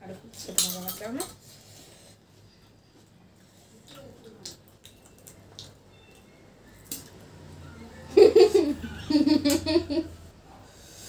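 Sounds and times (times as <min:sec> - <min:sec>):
woman and girl laughing: 0:08.1 - 0:10.2.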